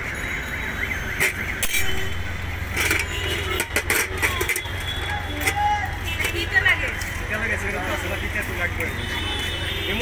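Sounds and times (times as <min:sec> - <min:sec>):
street hubbub: 0:00.0 - 0:10.0
traffic rumble: 0:00.0 - 0:10.0
metal cups clinking on tray: 0:02.7 - 0:04.8.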